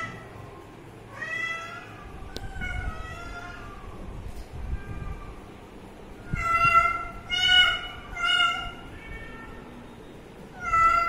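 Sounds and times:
cat meowing: 1.1 - 5.5, 6.2 - 9.8, 10.5 - 11.0.

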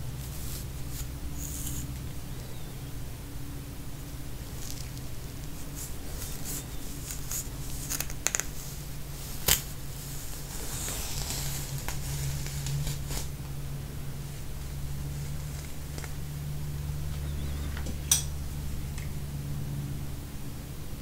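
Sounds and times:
low hum: 0.0 - 21.0
dry scratching on scalp: 0.2 - 2.0, 4.4 - 13.3.

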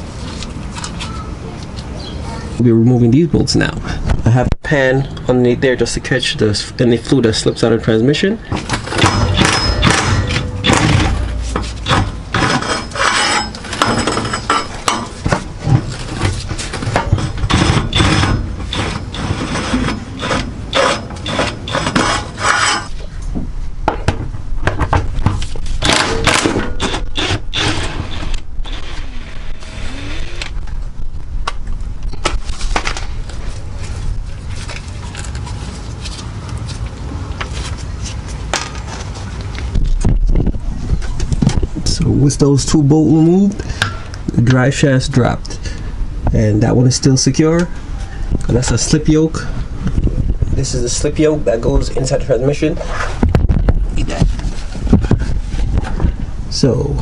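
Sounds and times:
metal clatter: 8.6 - 22.9.

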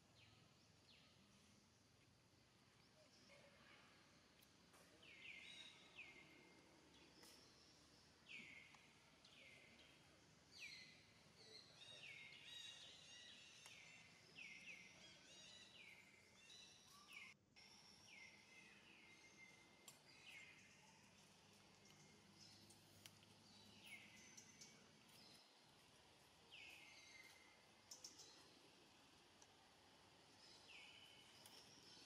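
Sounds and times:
quiet forest background: 0.0 - 32.0.

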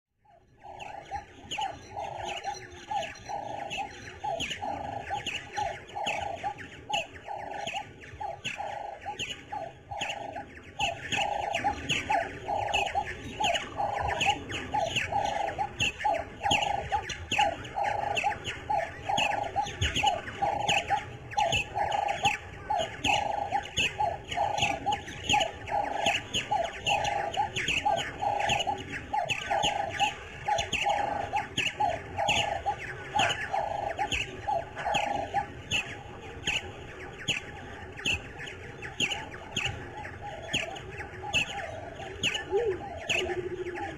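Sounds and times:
high bird chirps: 0.2 - 43.9
bird calling low note: 40.1 - 43.9.

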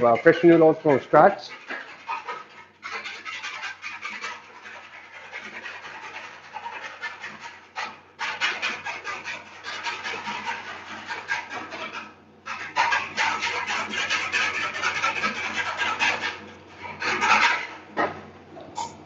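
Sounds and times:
spoon scraping in plastic jug: 0.0 - 11.9
faint machine hum: 0.0 - 19.0.

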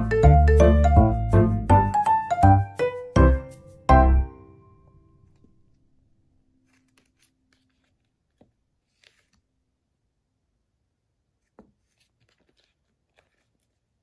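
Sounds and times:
faint clicks and rustles: 6.6 - 9.6, 11.4 - 14.0.

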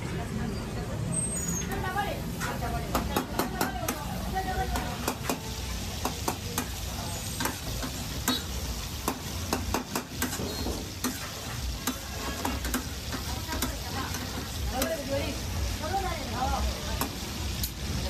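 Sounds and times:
chicken sizzling in a wok: 0.7 - 18.0
metal spatula scraping pan: 10.2 - 14.5.

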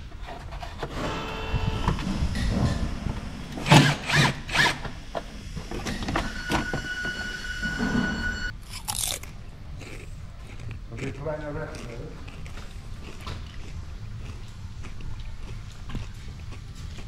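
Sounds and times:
drill-driver whirring: 3.6 - 5.0.

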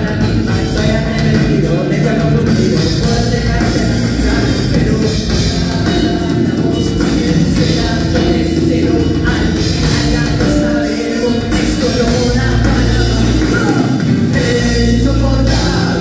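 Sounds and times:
bass guitar: 0.0 - 16.0
drum kit: 0.0 - 16.0
electric guitars: 0.0 - 16.0.

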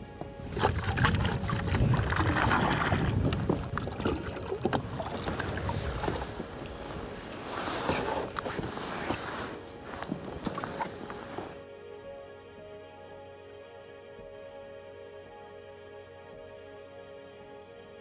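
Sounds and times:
water noise: 0.0 - 11.6
wind: 0.0 - 18.0.

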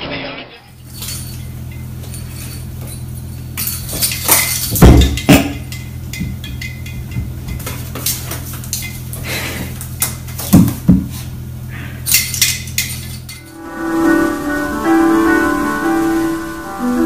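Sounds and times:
low steady hum: 0.7 - 17.0.

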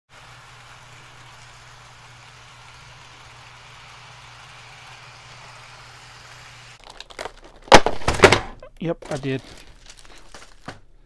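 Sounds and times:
model trains whirring on track: 0.1 - 6.8.

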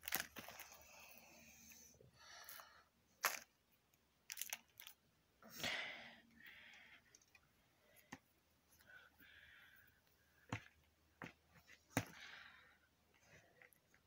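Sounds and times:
wrappers crinkling: 0.0 - 0.8.

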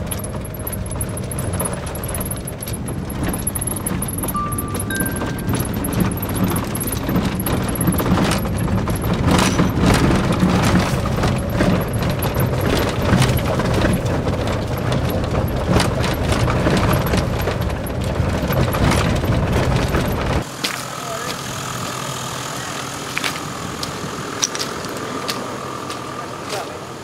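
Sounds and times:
engine and tyre rumble: 0.0 - 27.0
vehicle rattles and knocks: 0.0 - 27.0.

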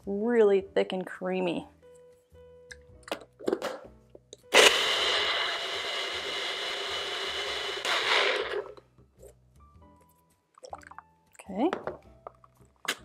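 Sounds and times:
blender grinding: 4.5 - 8.8.

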